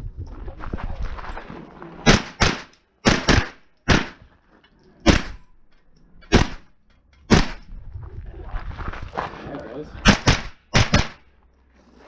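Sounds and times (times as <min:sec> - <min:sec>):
carbine gunshots: 0:02.0 - 0:04.2, 0:05.0 - 0:05.4, 0:06.3 - 0:06.7, 0:10.0 - 0:11.2.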